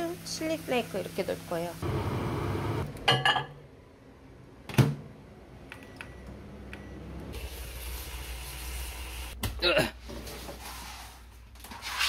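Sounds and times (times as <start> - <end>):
microwave humming: 1.8 - 9.4.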